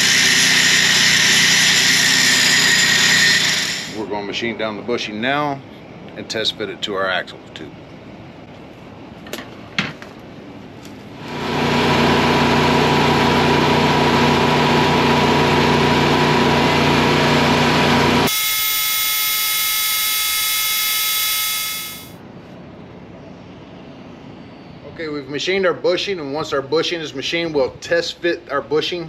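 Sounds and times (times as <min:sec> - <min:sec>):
high-pitched lathe whine: 0:00.0 - 0:04.0, 0:13.0 - 0:22.1
metal lathe running: 0:00.0 - 0:04.0.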